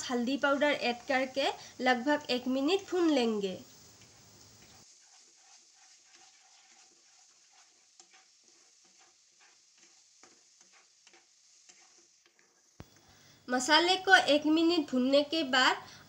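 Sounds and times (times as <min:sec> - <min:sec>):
wooden spatula scraping a pan: 0:00.0 - 0:03.4, 0:04.0 - 0:12.8
paste sizzling: 0:00.0 - 0:16.0.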